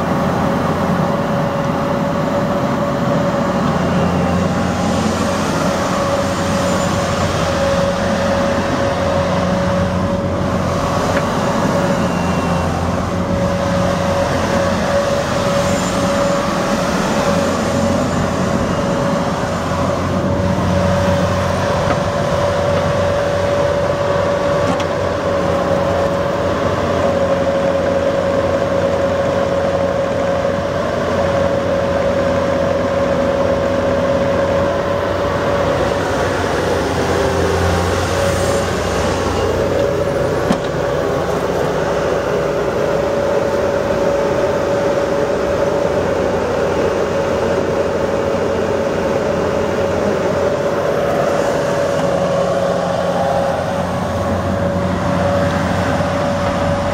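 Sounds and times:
constant high whine: 0.0s - 56.9s
excavator diesel engine drone: 0.0s - 56.9s.

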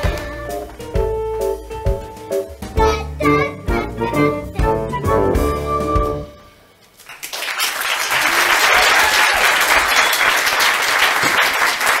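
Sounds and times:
children's song: 0.0s - 1.1s, 2.6s - 6.3s
audience applause: 7.0s - 12.0s.

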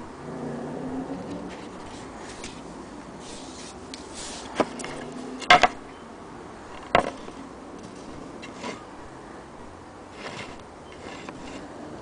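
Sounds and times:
wooden knocks: 5.5s - 5.8s, 6.8s - 7.3s.

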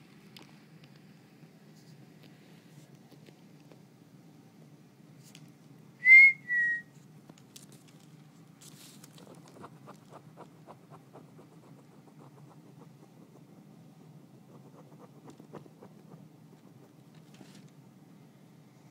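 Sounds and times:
person whistling short notes: 6.0s - 6.9s.

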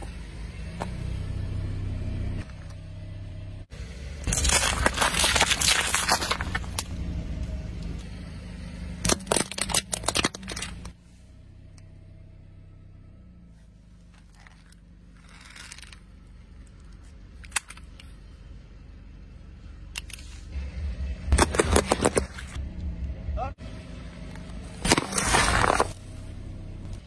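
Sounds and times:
car engine running low: 0.0s - 27.0s
tyre crushing toy balls: 4.2s - 6.9s, 9.0s - 10.9s, 24.8s - 26.0s.

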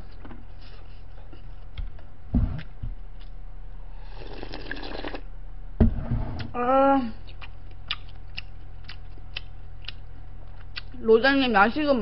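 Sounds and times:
steady low hum: 0.0s - 12.0s
slurping broth: 4.0s - 5.3s.

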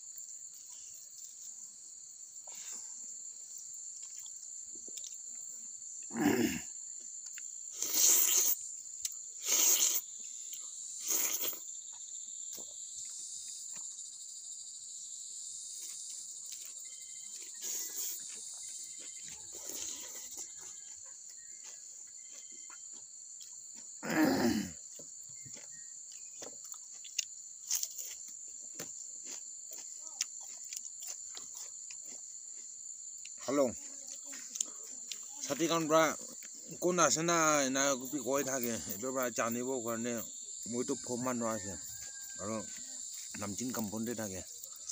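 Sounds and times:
insects chirring: 0.0s - 44.9s
mouth noises from eating: 6.1s - 11.7s, 17.4s - 18.5s, 19.3s - 20.9s.

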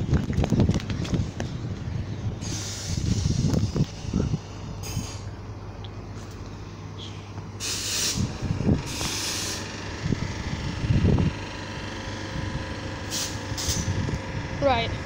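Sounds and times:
electric train humming and rumbling: 0.0s - 15.0s
air hissing release: 2.4s - 5.3s, 7.0s - 9.7s, 13.0s - 14.0s.

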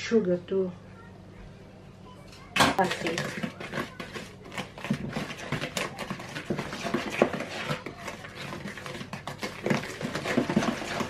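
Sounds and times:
wooden spoon stirring batter: 2.7s - 11.0s.

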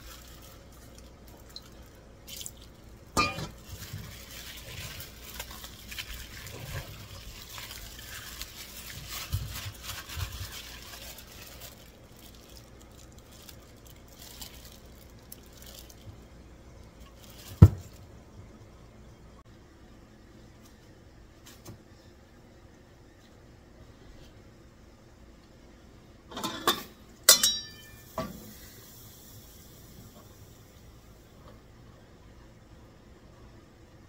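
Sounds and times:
wet batter squelching and stirring: 0.0s - 16.2s.

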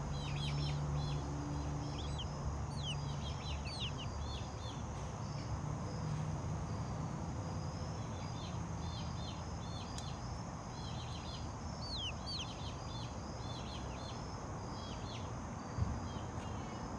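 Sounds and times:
outdoor background noise: 0.0s - 16.9s
chicks peeping: 0.1s - 5.5s, 8.1s - 15.3s.

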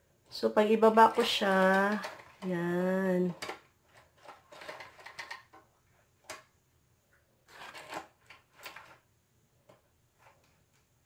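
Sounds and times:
roller blind rustling and clicking: 0.7s - 5.7s, 7.5s - 9.1s.

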